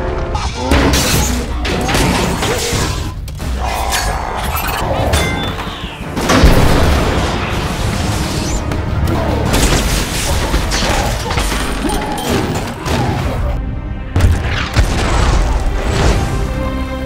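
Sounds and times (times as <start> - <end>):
orchestral score music: 0.0 - 17.0
explosions: 6.2 - 8.5.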